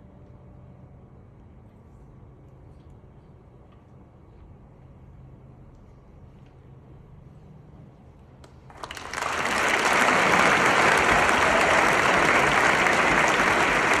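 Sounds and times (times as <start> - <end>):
audience applauding: 8.7 - 14.0.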